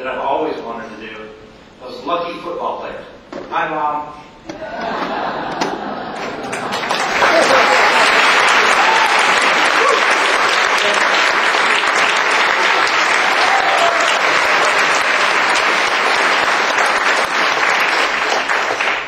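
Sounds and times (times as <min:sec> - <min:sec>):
crowd applauding: 0:04.8 - 0:19.0.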